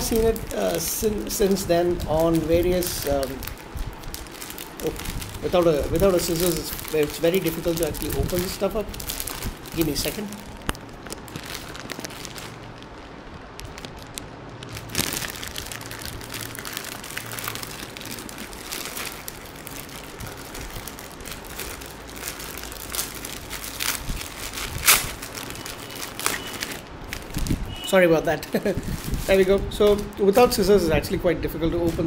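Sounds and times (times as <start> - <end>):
plastic packaging crinkling: 0.0 - 32.0
plastic tearing snaps: 2.2 - 27.5.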